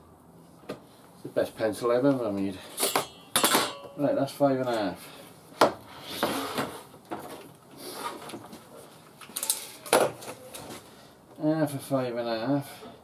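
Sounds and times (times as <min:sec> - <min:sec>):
tools clinking: 0:02.8 - 0:04.0.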